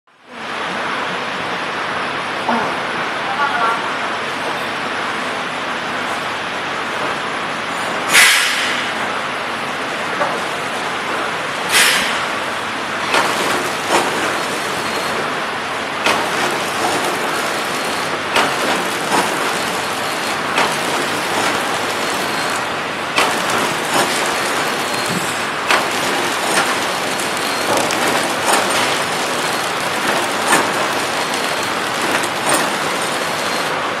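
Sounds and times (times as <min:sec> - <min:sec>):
wrapping machine whirring: 0:13.0 - 0:34.0
machine sharp clicks: 0:16.0 - 0:33.8.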